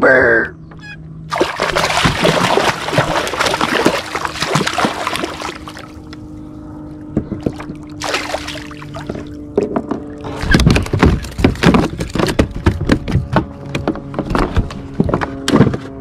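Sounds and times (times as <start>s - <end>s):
fish thrashing and splashing water: 1.3s - 6.2s, 7.4s - 12.3s.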